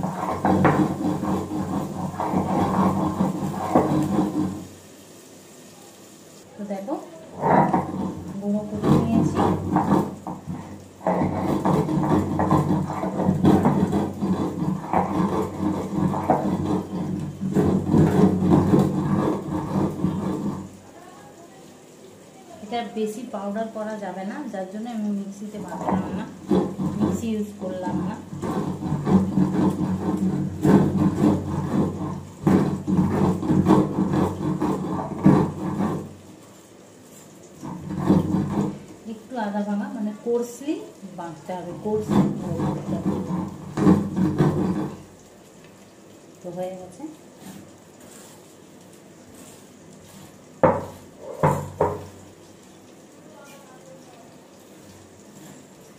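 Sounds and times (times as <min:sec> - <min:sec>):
stone roller scraping grinding stone: 0:00.0 - 0:04.8, 0:07.3 - 0:20.9, 0:25.4 - 0:40.4, 0:41.0 - 0:45.3, 0:46.4 - 0:52.3, 0:54.8 - 0:55.9.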